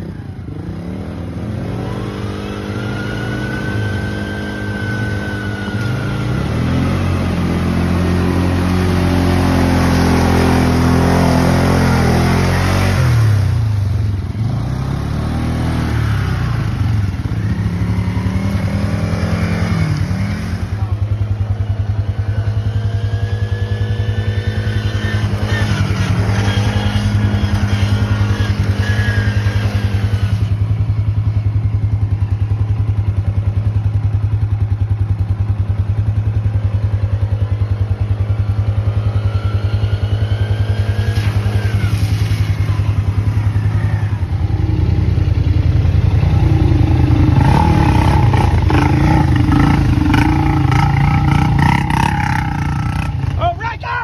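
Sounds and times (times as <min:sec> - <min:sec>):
small atv engine revving: 0:00.0 - 0:31.7, 0:37.4 - 0:54.0
loud atv engine: 0:00.0 - 0:54.0
atv engine idling: 0:16.4 - 0:41.4, 0:42.3 - 0:54.0.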